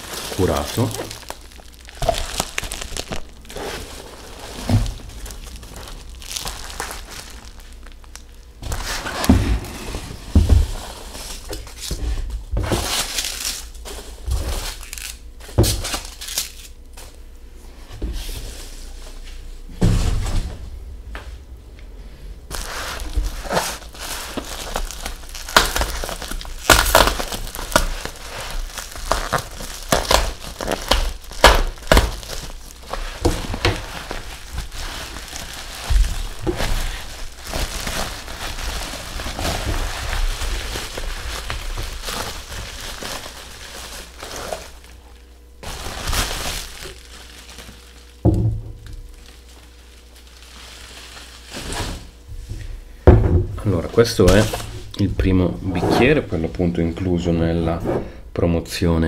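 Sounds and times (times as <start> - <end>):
bubble wrap crinkling: 0.0 - 17.2, 22.4 - 52.3
packages thumping on table: 4.5 - 7.6, 22.5 - 44.8.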